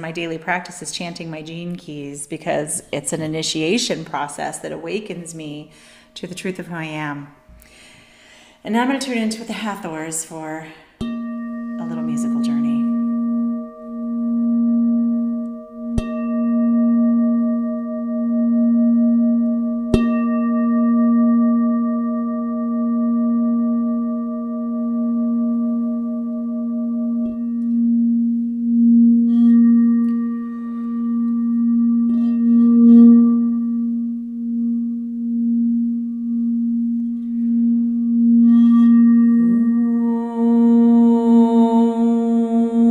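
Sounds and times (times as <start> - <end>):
singing bowl struck: 11.0 - 41.3
crystal singing bowl ringing: 11.0 - 42.9.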